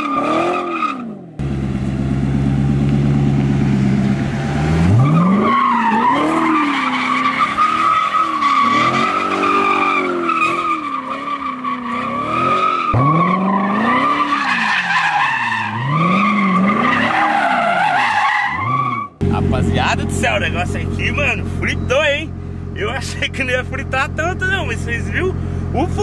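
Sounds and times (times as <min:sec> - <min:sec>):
car engine revving: 0:00.0 - 0:18.0, 0:18.6 - 0:26.0
tyres squealing: 0:04.9 - 0:19.0.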